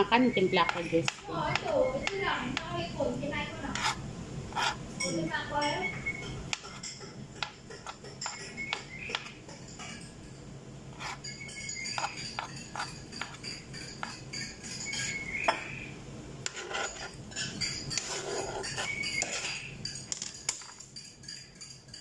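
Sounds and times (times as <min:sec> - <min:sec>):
slices clinking into glass bowl: 0:04.6 - 0:10.3, 0:11.0 - 0:15.7, 0:16.5 - 0:22.0
knife tapping on cutting board: 0:07.4 - 0:09.3.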